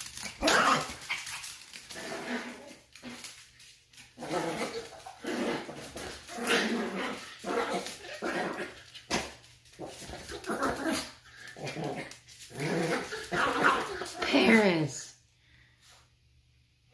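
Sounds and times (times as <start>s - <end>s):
small dog growling: 0.1s - 3.4s, 4.2s - 14.2s.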